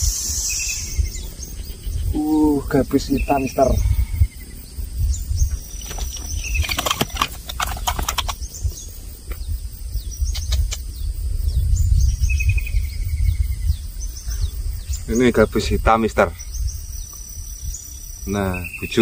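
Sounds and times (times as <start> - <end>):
birds chirping: 0.0 - 19.0
clicks and rustling: 5.8 - 8.4.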